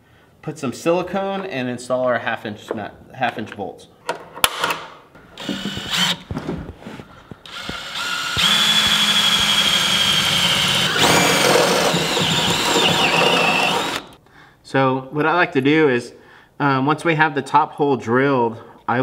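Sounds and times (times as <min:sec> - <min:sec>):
cordless drill boring through steel: 0:05.4 - 0:06.2, 0:07.5 - 0:14.2.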